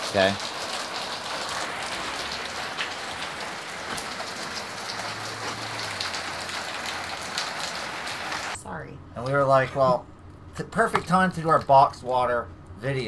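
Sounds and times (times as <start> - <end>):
heavy rain: 0.0 - 8.6.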